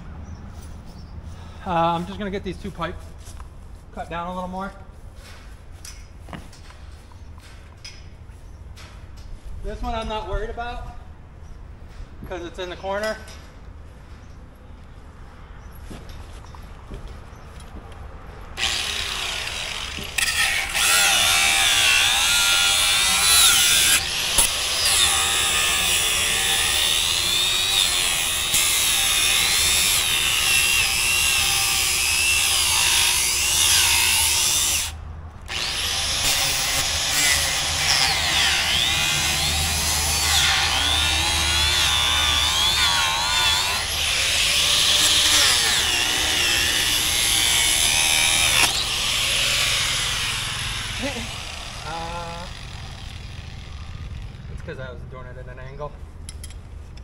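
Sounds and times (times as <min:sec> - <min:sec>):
power tool cutting steel pipe: 0:18.6 - 0:54.6.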